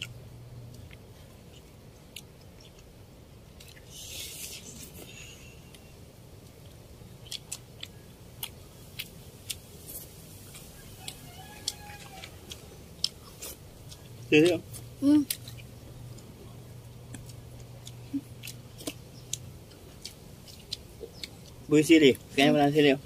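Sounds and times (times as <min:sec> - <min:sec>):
chewing: 0:00.0 - 0:22.4
crab shells cracking: 0:10.6 - 0:14.0.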